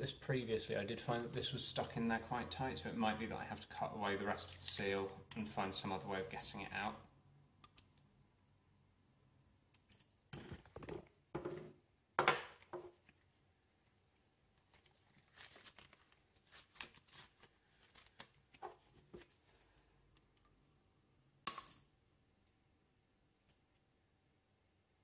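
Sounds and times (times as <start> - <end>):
glove rustling: 13.9 - 19.9.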